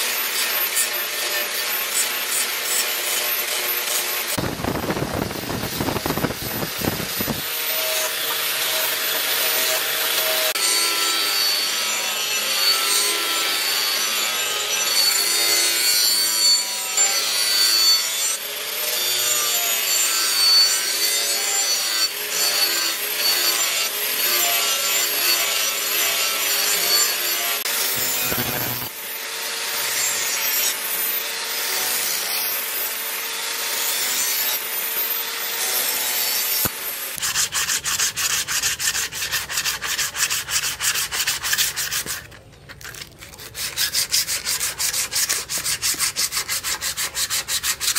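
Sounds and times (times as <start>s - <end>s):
angle grinder motor whine: 3.4s - 15.3s, 27.4s - 29.0s.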